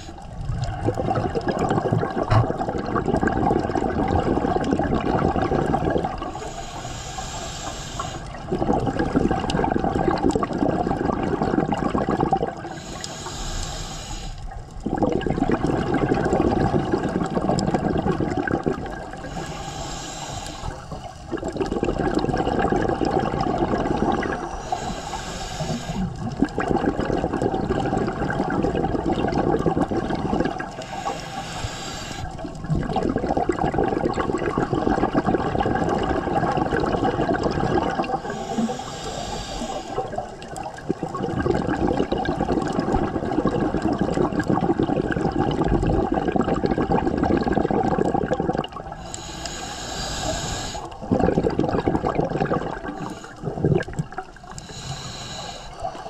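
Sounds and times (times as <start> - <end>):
exhaled bubbles rushing: 0.0 - 6.5, 8.2 - 12.9, 14.5 - 19.5, 20.4 - 25.0, 25.6 - 31.2, 32.2 - 49.3, 50.2 - 56.0
regulator hissing inhalations: 6.3 - 8.4, 12.6 - 14.6, 19.2 - 21.4, 24.0 - 26.2, 30.7 - 32.5, 38.1 - 40.4, 48.9 - 51.1, 52.7 - 53.6, 54.4 - 56.0.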